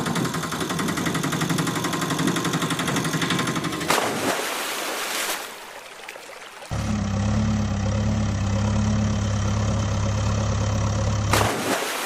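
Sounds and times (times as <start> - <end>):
water wash: 2.6 - 7.1, 11.3 - 12.0
splash into water: 3.9 - 6.8, 11.3 - 12.0.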